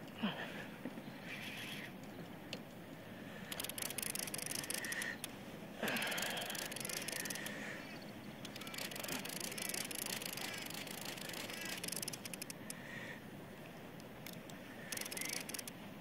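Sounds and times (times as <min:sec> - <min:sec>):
wind and water hiss: 0:00.0 - 0:16.0
fishing reel ratchet clicking: 0:03.5 - 0:05.3, 0:05.9 - 0:07.6, 0:08.4 - 0:12.8, 0:14.2 - 0:15.8.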